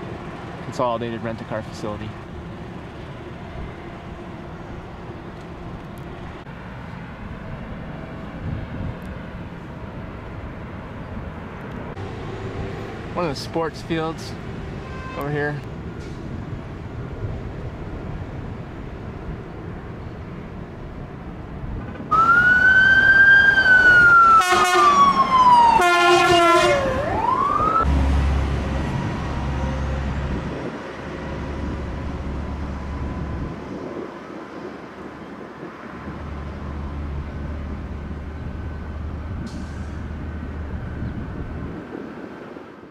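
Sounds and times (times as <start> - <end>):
emergency vehicle siren: 22.1 - 30.4.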